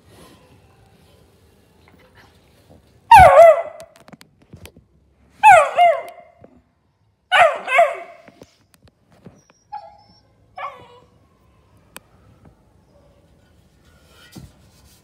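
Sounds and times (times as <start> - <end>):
puppy barking: 3.1 - 4.0, 5.4 - 6.4, 7.3 - 8.3, 10.6 - 11.0.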